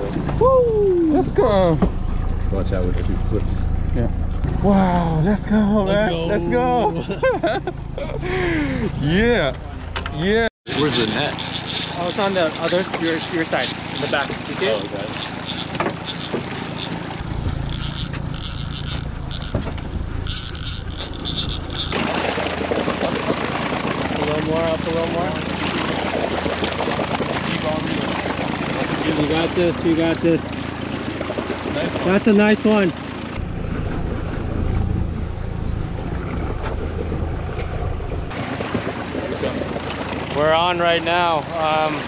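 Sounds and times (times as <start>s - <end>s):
low steady hum: 0.0s - 31.6s, 32.2s - 42.0s
fishing reel clicking: 10.7s - 19.6s, 20.2s - 22.0s.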